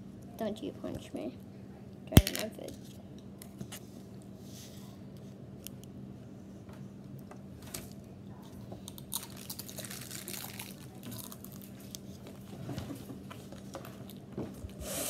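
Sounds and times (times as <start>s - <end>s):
crunchy cookie being chewed: 8.4s - 12.4s.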